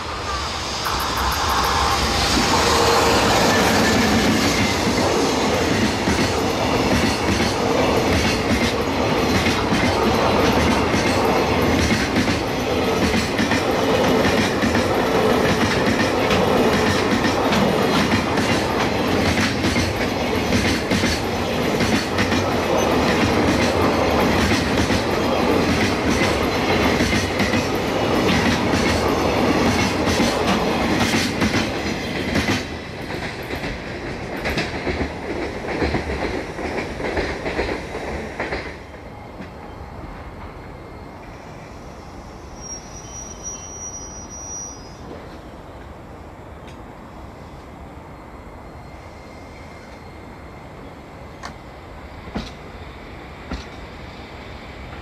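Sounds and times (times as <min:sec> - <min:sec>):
freight train wheels clattering: 0:00.6 - 0:39.6.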